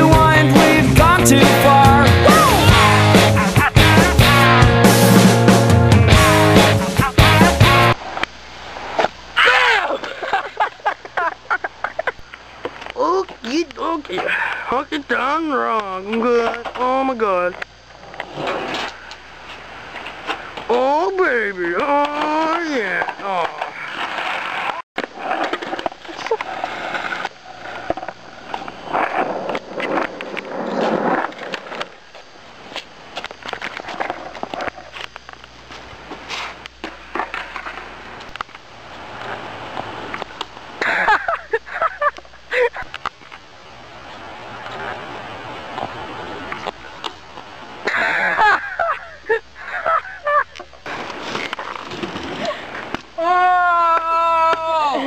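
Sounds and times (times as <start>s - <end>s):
skateboard wheels rolling on asphalt: 0.0s - 55.0s
voices shouting: 1.6s - 4.0s, 53.2s - 55.0s.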